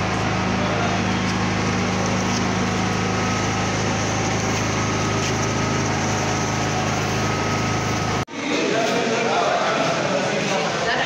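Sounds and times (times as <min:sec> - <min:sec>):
small motor humming with whine: 0:00.0 - 0:08.2.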